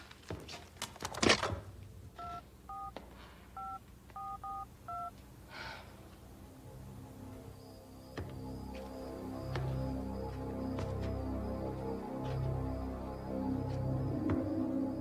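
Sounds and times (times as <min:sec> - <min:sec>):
telephone key beeps: 0:03.6 - 0:05.1.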